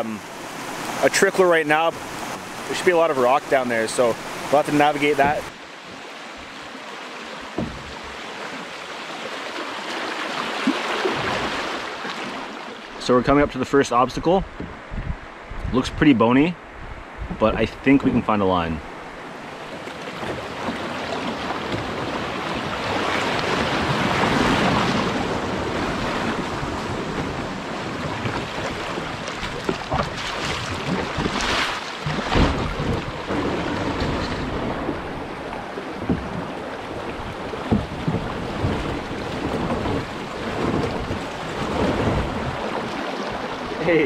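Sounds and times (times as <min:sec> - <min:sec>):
water rushing over rocks: 0:00.0 - 0:15.0, 0:18.9 - 0:44.0
knocks on a canoe: 0:07.5 - 0:08.5, 0:14.5 - 0:14.8, 0:27.1 - 0:43.0.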